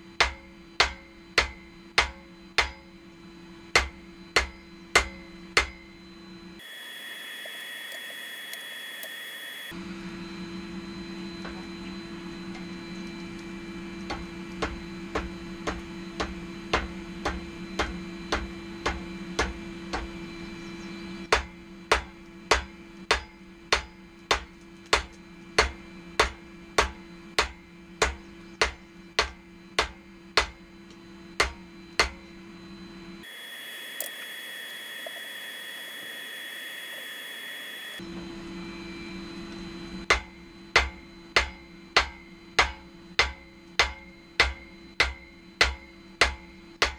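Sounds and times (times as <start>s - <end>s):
steady low hum: 0.0s - 46.9s
hammer striking steel on anvil: 0.1s - 6.1s, 14.0s - 20.4s, 21.2s - 30.7s, 31.4s - 32.3s, 40.0s - 46.9s.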